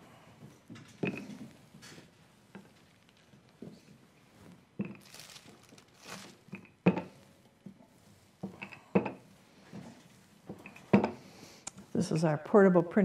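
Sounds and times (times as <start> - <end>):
rolling pin rubbing on felt: 7.1 - 8.5.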